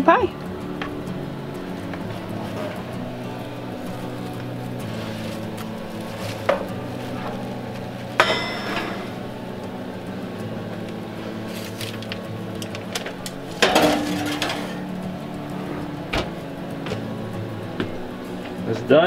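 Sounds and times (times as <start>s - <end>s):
metal pan clanking on grate: 8.2s - 9.2s, 13.6s - 14.9s
clatter of metal and foil: 11.5s - 15.0s.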